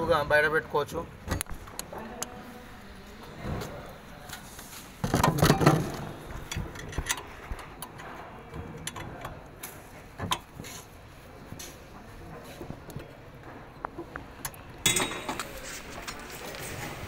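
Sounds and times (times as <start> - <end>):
metal clicks and knocks: 5.0 - 10.6.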